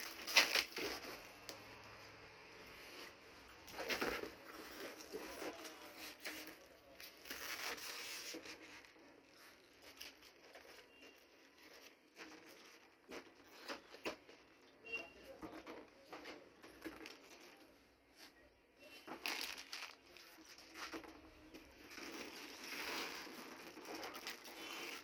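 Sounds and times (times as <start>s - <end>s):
tape and cardboard tearing: 0.0s - 1.3s, 22.2s - 25.0s.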